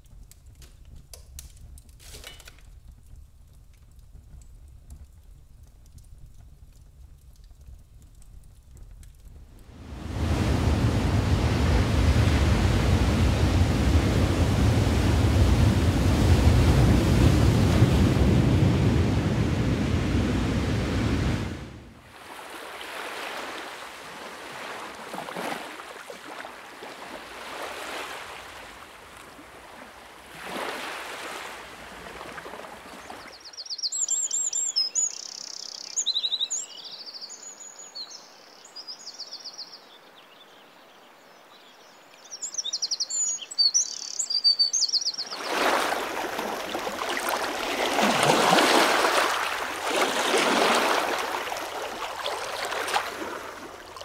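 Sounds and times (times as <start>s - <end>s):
sea waves washing in: 9.6s - 33.4s, 45.2s - 54.0s
songbirds chirping and trilling: 33.0s - 46.2s.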